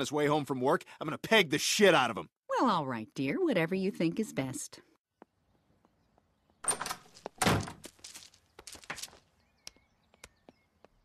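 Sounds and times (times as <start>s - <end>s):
cartoon door opening and shutting: 6.6s - 7.8s.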